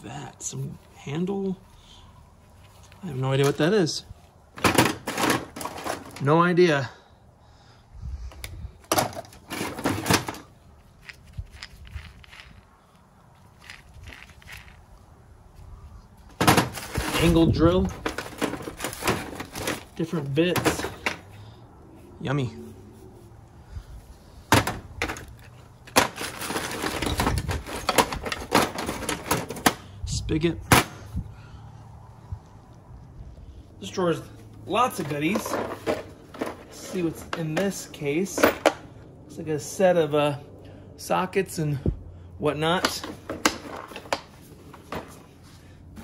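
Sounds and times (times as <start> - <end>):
tools rattling and clinking in drawer: 4.6 - 6.3, 8.9 - 10.5, 16.4 - 21.2, 24.5 - 29.8, 34.8 - 38.9, 42.7 - 45.3.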